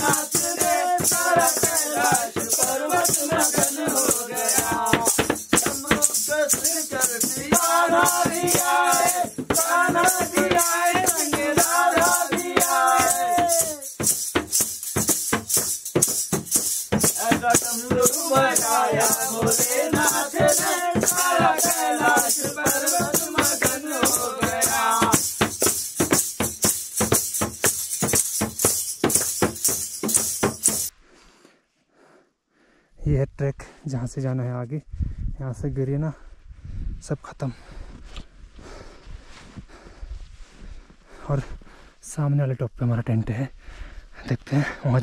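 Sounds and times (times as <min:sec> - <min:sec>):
voices singing devotional song: 0:00.0 - 0:14.2, 0:16.0 - 0:26.1
shaker rattle: 0:00.0 - 0:30.9.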